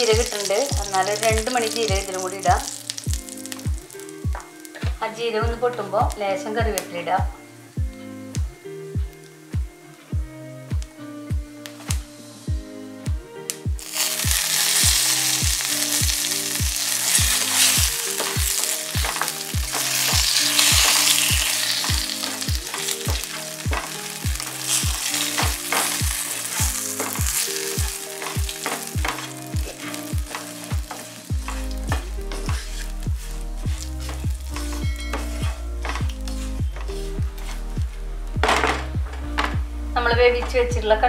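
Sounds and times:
food sizzling in a frying pan: 0.0 - 38.5
music with deep drum beat: 0.1 - 41.0
spatula stirring in a pan: 13.8 - 37.7.

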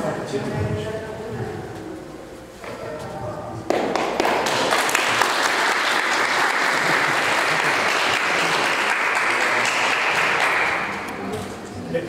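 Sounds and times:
crowd applauding: 3.7 - 11.1.

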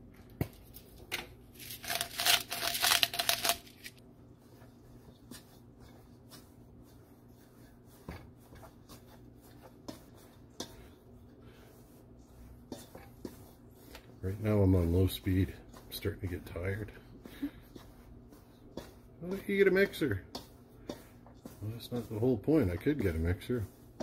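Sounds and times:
fork scraping metal bowl: 11.6 - 16.8, 17.7 - 24.0.

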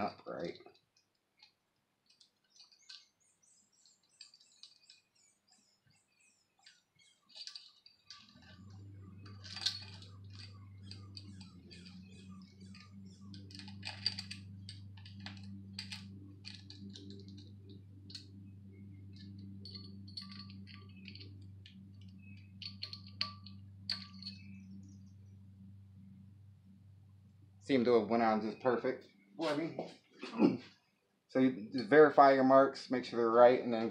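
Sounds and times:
steady low hum: 2.2 - 33.9
metallic chain clicks and jingles: 7.3 - 18.3, 19.1 - 24.4.

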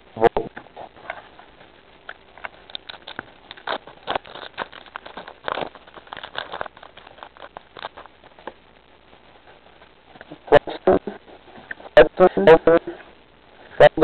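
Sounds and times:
foil wrapper crinkling and tearing: 2.0 - 8.7.

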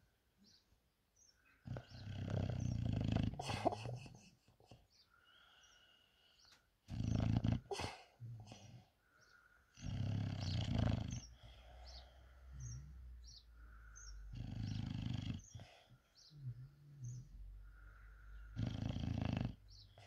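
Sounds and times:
dog snoring: 1.6 - 4.0, 6.9 - 8.7, 9.7 - 13.4, 14.0 - 17.4, 18.3 - 20.0.

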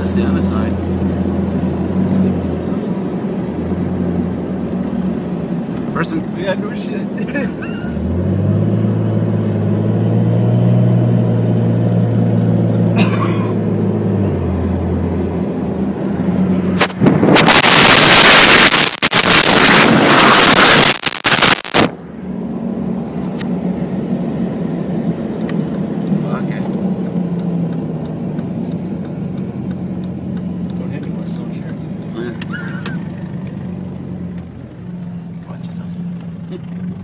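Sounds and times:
wind rushing on microphone: 16.8 - 22.0.

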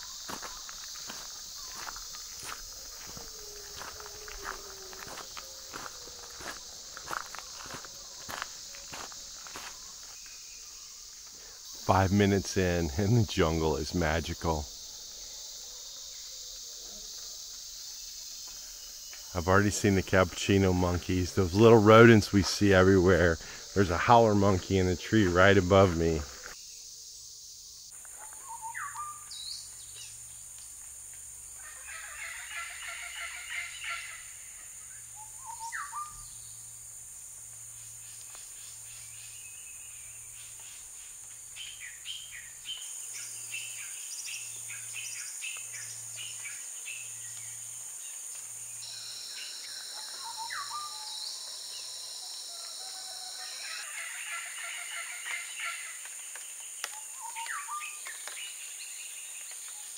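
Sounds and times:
birds chattering: 0.0 - 14.7
high insect drone: 0.0 - 59.9
low insect trill: 0.0 - 59.9
bird rising call: 35.2 - 36.2, 50.2 - 51.1.

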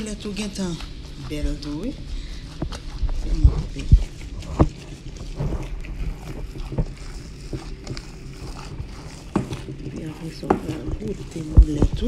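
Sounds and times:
wet squishing of meat: 0.0 - 12.0.

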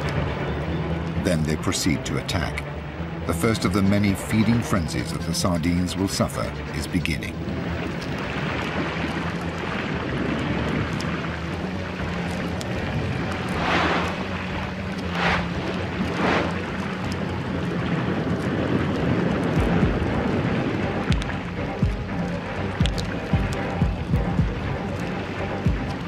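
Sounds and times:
low steady drone: 0.0 - 26.0
rushing underwater ambience: 0.0 - 26.0
short swooshes: 13.5 - 14.2, 15.0 - 16.7.

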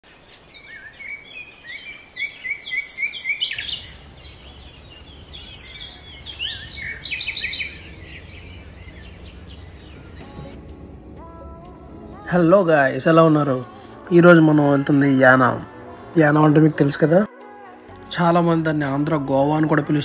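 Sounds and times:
birds chirping: 0.0 - 20.0
steady low hum: 3.7 - 14.1.

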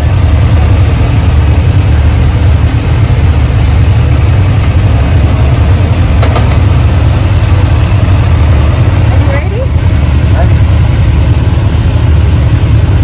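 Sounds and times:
engines idling low rumble: 0.0 - 13.0.

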